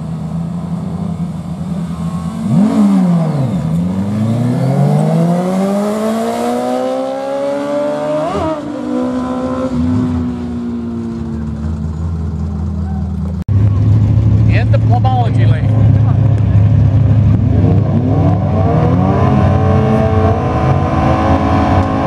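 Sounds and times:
motorcycle engine revving: 2.0s - 22.0s.

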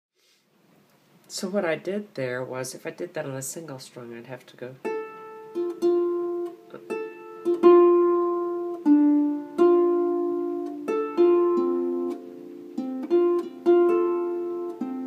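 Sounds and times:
harp plucked notes: 4.8s - 15.0s.

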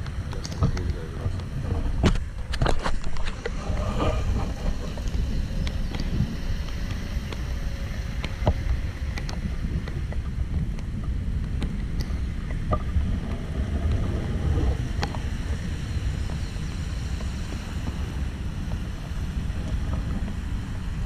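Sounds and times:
light ticks: 0.0s - 1.5s, 5.0s - 7.5s, 8.2s - 14.1s
wind rumbling on microphone: 0.0s - 21.0s.

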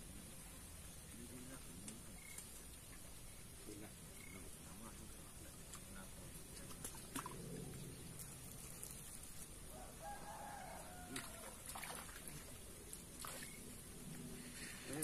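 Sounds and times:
low outdoor background noise: 0.0s - 15.0s
rooster crowing: 9.7s - 11.8s.

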